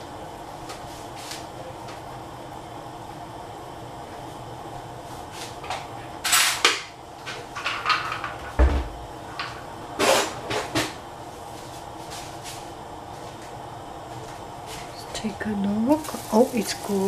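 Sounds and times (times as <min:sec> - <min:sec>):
steady background hum: 0:00.0 - 0:17.0
cookware knocking and clattering: 0:07.6 - 0:08.9.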